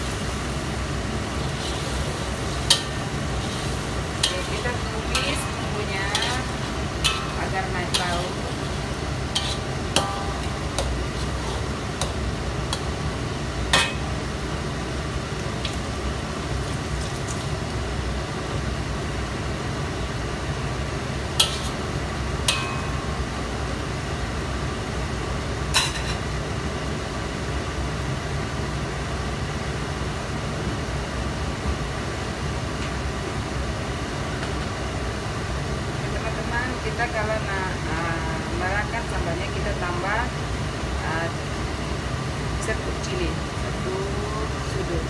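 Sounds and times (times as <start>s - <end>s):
metal spatula scraping a wok: 1.3s - 12.9s, 21.4s - 21.9s, 25.8s - 26.2s.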